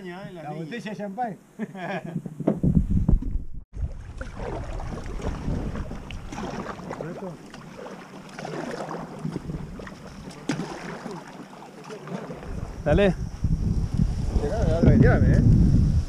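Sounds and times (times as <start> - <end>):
paddle splashing in water: 3.8 - 12.8.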